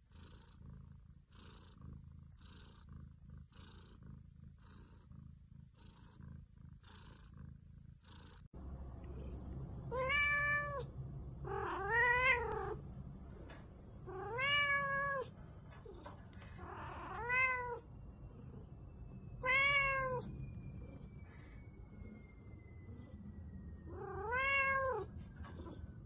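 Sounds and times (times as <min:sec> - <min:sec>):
cat meowing loudly: 0:09.9 - 0:10.8, 0:11.5 - 0:12.8, 0:14.2 - 0:15.3, 0:19.4 - 0:20.3, 0:24.0 - 0:25.1.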